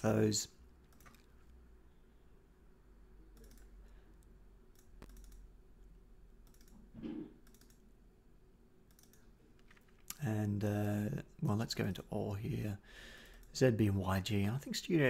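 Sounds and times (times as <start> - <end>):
low steady hum: 0.0 - 15.0
computer mouse clicks: 0.8 - 1.6, 3.3 - 5.5, 6.4 - 6.8, 7.4 - 7.8, 8.9 - 10.2.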